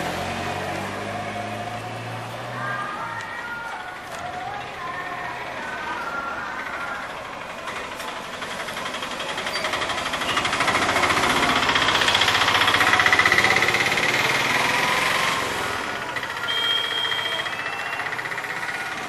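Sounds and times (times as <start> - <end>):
small engine running: 6.2 - 19.0.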